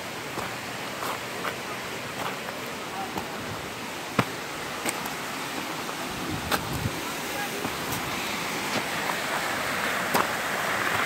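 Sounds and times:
waterfall rushing: 0.0 - 11.0
footsteps on rock and gravel: 0.3 - 3.4, 4.1 - 5.2.

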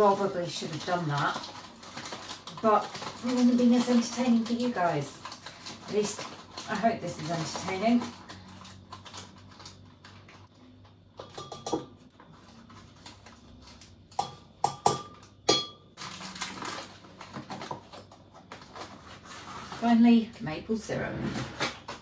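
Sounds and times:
kitchen utensils clinking: 11.2 - 12.0
spoon clinking against containers: 11.2 - 12.0, 14.2 - 15.9.

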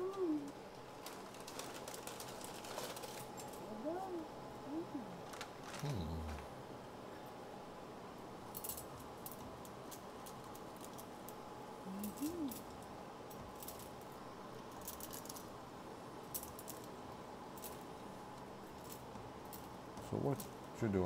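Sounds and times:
low voice-like sound: 0.0 - 0.5, 3.7 - 6.5.

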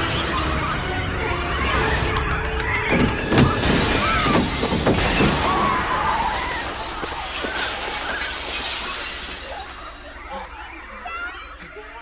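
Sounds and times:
glass shattering: 3.6 - 10.3.

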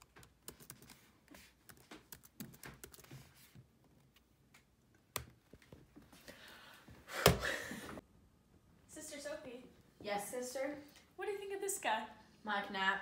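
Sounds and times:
laptop keyboard typing: 0.0 - 4.1.

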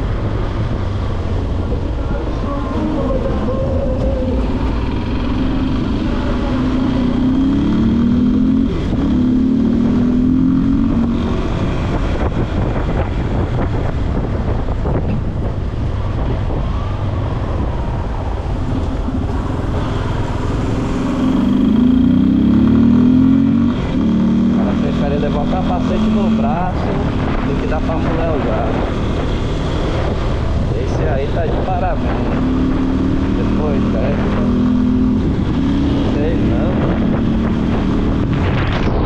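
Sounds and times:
motorcycle engine revving: 0.0 - 39.0
steady rushing noise: 0.0 - 39.0.

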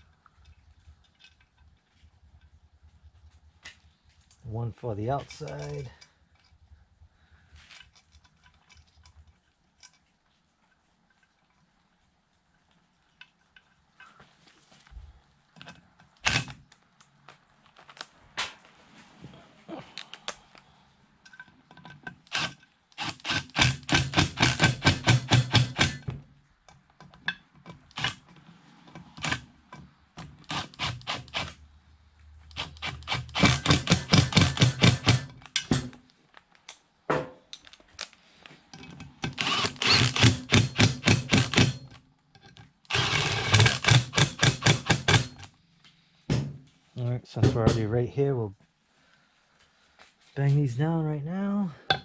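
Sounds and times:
impact driver rattling: 16.2 - 16.6, 22.3 - 26.1, 32.6 - 35.9, 39.2 - 42.0, 42.9 - 45.5.

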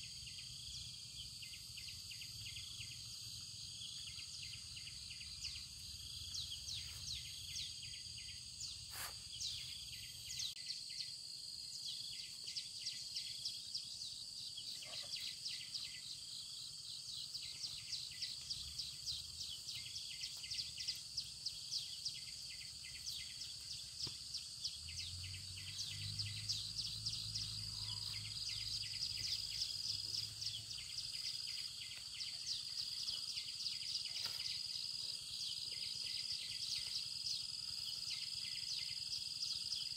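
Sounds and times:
high insect chirps: 0.0 - 39.9
insect drone: 0.0 - 39.9.

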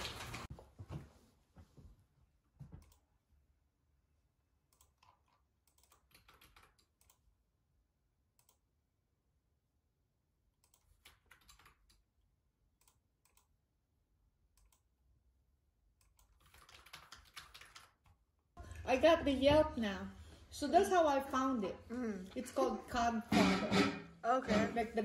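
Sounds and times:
keyboard typing: 4.7 - 7.2, 10.6 - 12.0, 16.0 - 18.2.

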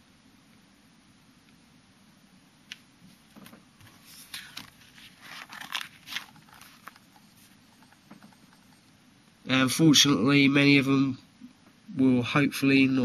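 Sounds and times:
plastic sleeve pages crinkling: 3.4 - 8.3.

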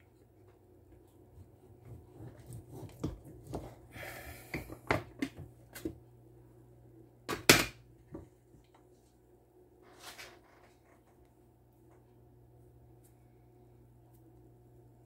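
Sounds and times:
blade cutting soap: 1.4 - 3.9.

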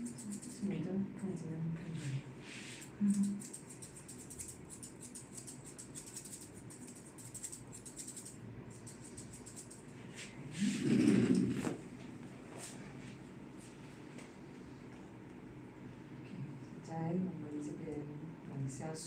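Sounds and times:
scissors snipping hair: 0.0 - 0.7, 2.8 - 9.9.

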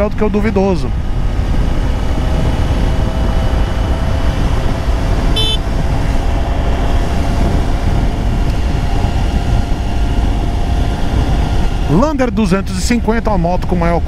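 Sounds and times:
wind rush: 0.0 - 14.0
motorcycle engine: 0.8 - 13.2
high-pitched horn toot: 5.3 - 5.6.

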